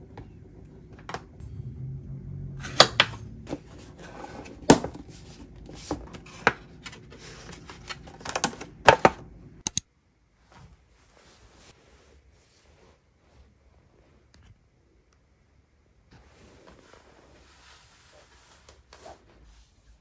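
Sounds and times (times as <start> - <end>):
plastic containers handled: 2.8 - 9.3.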